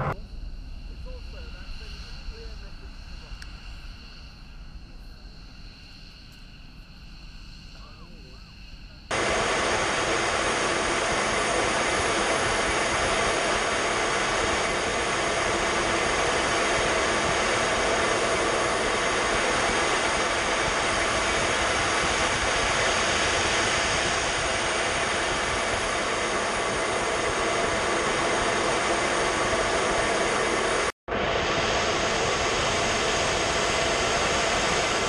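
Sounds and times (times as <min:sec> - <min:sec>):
high whining tones: 0:00.0 - 0:05.3, 0:06.0 - 0:35.0
jet engines and rushing air: 0:00.0 - 0:35.0.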